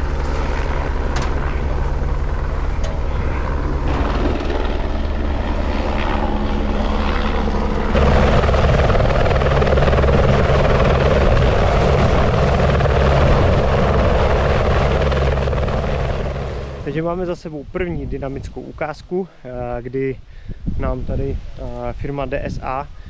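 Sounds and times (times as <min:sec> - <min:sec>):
helicopter rotor beat: 0:00.0 - 0:18.1.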